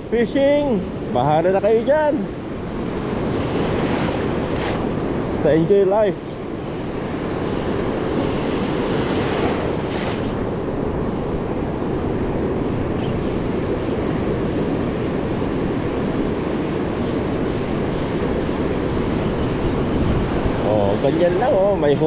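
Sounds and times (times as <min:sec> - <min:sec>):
ocean surf breaking: 0:00.0 - 0:22.0
wind buffeting microphone: 0:00.0 - 0:22.0.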